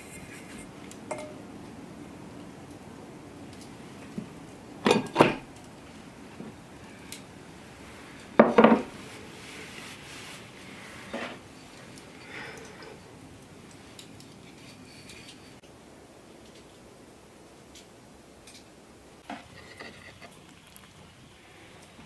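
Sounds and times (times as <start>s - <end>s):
metal pans knocking on wooden table: 8.4s - 8.9s.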